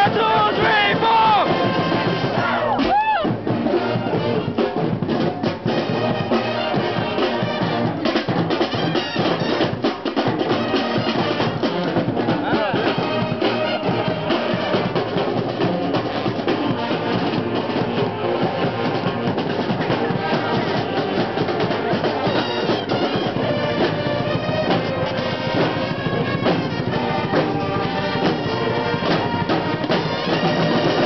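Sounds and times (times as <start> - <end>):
marching band playing: 0.0 - 31.0.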